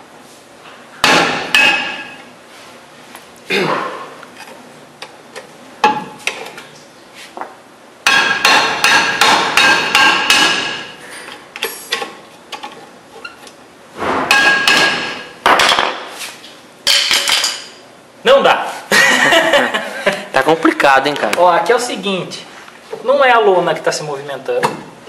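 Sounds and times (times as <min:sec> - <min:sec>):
hammer striking metal drum: 0:08.0 - 0:10.9, 0:14.3 - 0:15.7.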